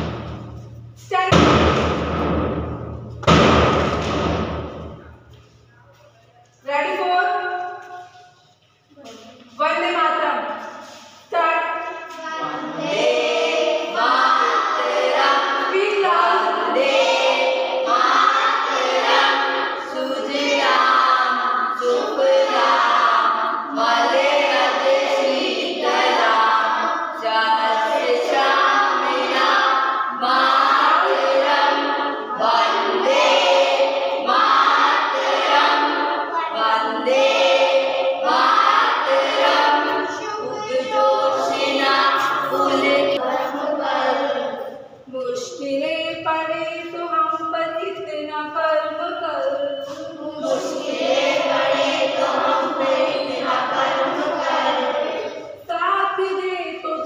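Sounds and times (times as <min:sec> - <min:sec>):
children singing in unison: 0:12.2 - 0:44.8, 0:49.8 - 0:55.7.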